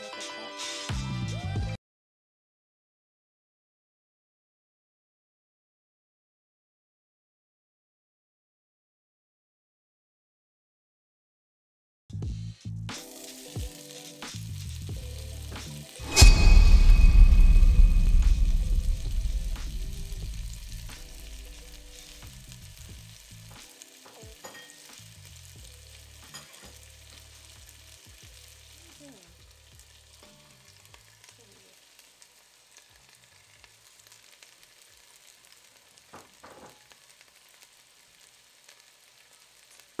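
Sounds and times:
food sizzling and frying: 0:13.0 - 0:40.0
small crackles: 0:21.3 - 0:40.0.

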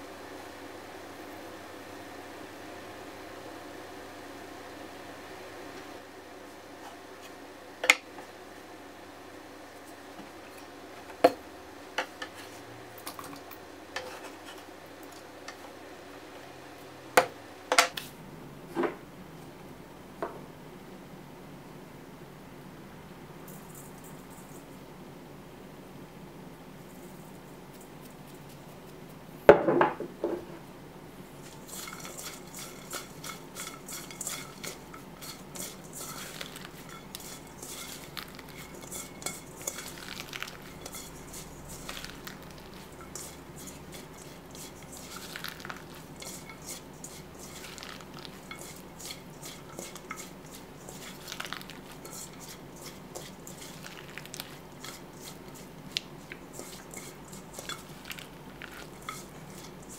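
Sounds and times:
cucumber slices tossed in metal bowl: 0:31.4 - 0:59.9.

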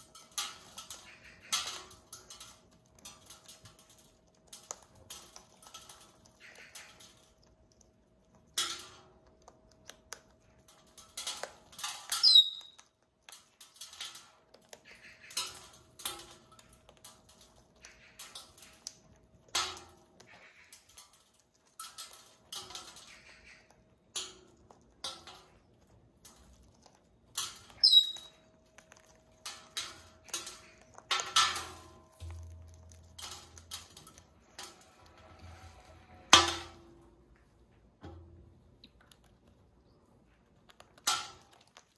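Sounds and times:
beaks crunching food: 0:00.0 - 0:36.9, 0:38.6 - 0:41.9
high falling squeak: 0:12.2 - 0:12.8, 0:27.8 - 0:28.3.

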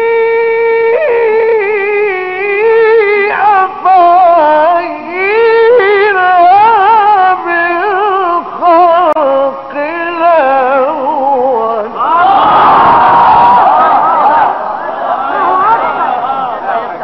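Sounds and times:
man reciting in melodic chant: 0:00.0 - 0:12.1.

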